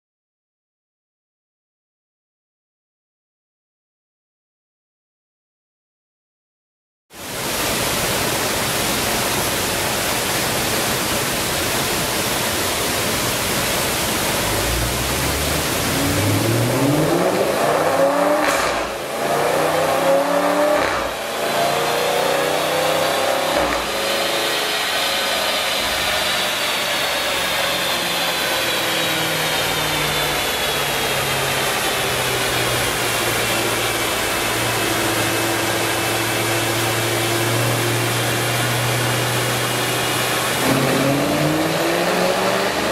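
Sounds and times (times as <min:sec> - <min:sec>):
cooling fan rushing: 0:09.0 - 0:21.3, 0:23.8 - 0:42.9
car engine revving: 0:13.7 - 0:42.9
high whine: 0:13.9 - 0:42.9.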